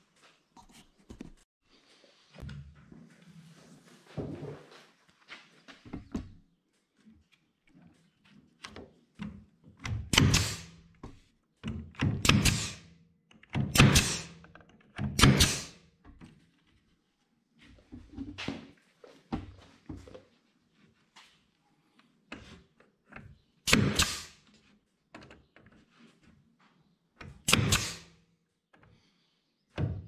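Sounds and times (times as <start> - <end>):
nailer firing nails: 9.9 - 10.8, 12.0 - 13.0, 13.6 - 14.4, 15.0 - 15.8, 23.6 - 24.4, 27.4 - 28.2.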